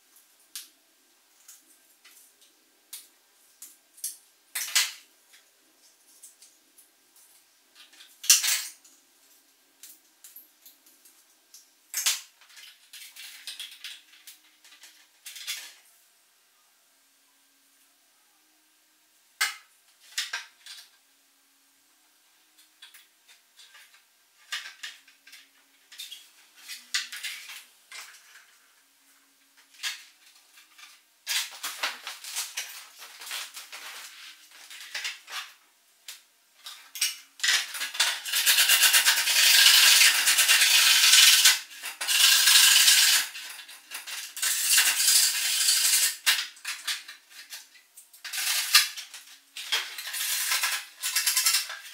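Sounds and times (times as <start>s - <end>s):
scraping and rubbing plastic: 29.6s - 35.6s, 36.6s - 51.9s.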